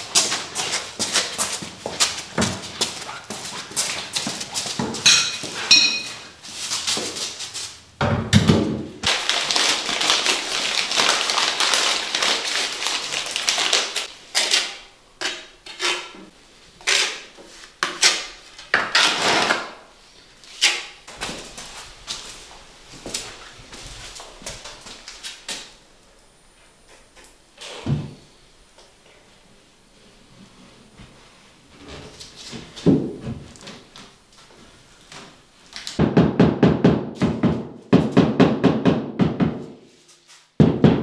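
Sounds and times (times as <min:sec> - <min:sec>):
renovation clatter and knocks: 0:08.0 - 0:09.0.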